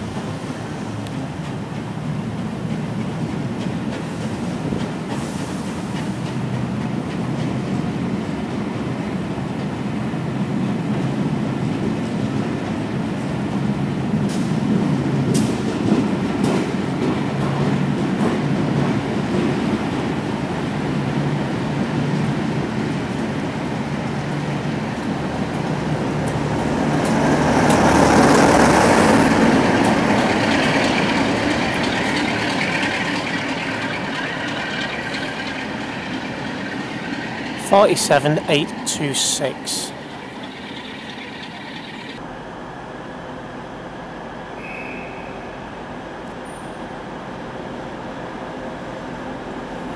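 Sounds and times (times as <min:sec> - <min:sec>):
train wheels rumbling on rails: 0:00.0 - 0:42.3.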